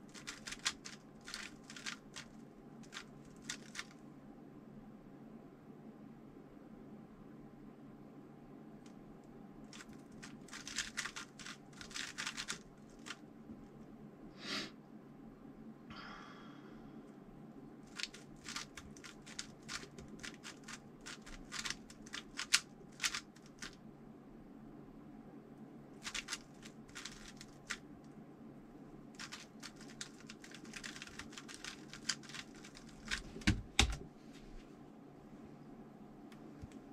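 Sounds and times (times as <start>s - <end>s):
puzzle cube clicking: 0.1s - 3.9s, 9.7s - 13.2s, 17.9s - 23.8s, 26.0s - 27.8s, 29.2s - 34.0s.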